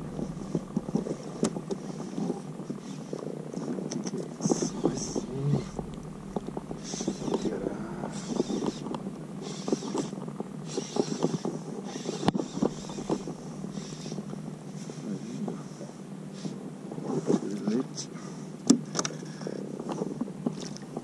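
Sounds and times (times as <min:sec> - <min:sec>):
knocks and ticks against hull: 0:00.0 - 0:14.6, 0:18.6 - 0:21.0
water splashing against kayak: 0:00.0 - 0:14.8, 0:19.9 - 0:21.0.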